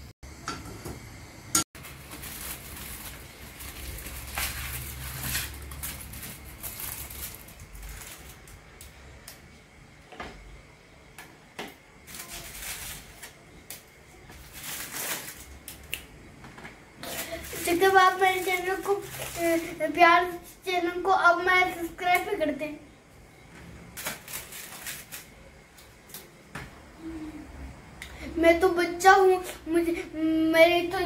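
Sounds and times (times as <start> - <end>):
foil wrapper crinkling: 1.8 - 8.8, 12.1 - 16.0, 17.0 - 20.4, 24.0 - 25.5.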